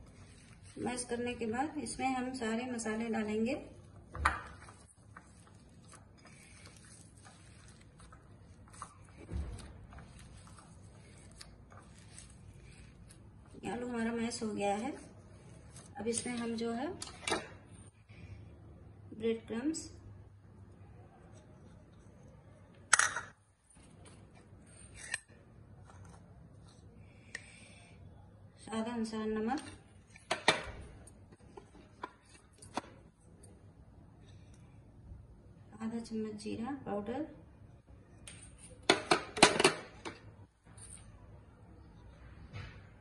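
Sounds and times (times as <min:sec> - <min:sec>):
potatoes squishing: 0:04.6 - 0:13.7.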